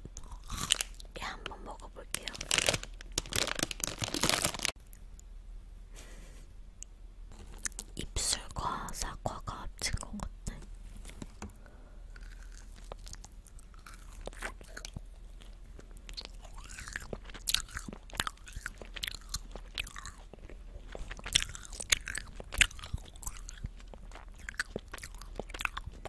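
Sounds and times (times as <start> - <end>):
chewing gummy candy: 0.0 - 5.0, 7.4 - 8.0, 12.1 - 26.0.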